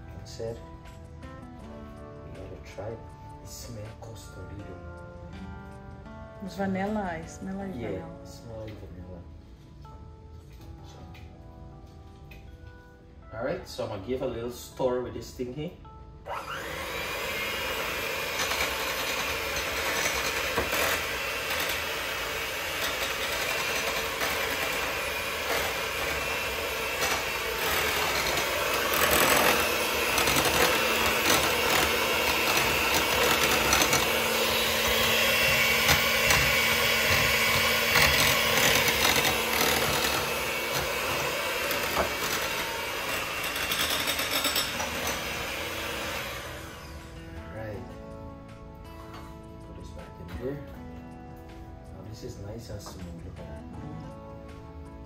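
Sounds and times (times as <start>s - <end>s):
electric hand mixer whisking batter: 16.3s - 47.3s.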